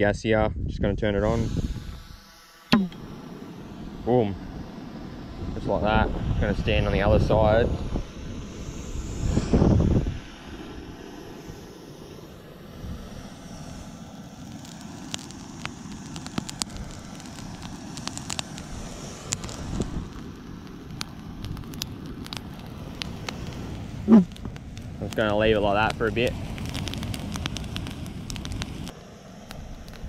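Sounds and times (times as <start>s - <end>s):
low rushing noise: 0.0s - 30.0s
fire crackling and popping: 1.2s - 30.0s.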